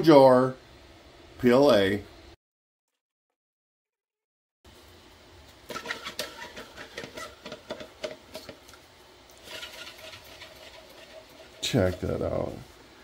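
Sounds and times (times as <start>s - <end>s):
plastic rubbing: 5.7s - 8.6s, 9.4s - 12.2s.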